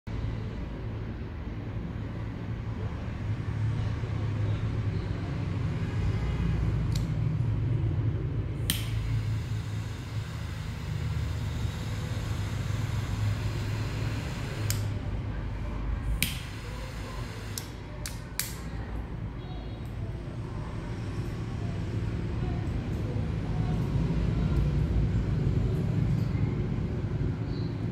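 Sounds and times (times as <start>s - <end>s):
steady low hum: 0.1s - 27.9s
lighter lid and igniter clicks: 8.7s - 9.0s
torch jet flames hissing: 8.7s - 15.0s.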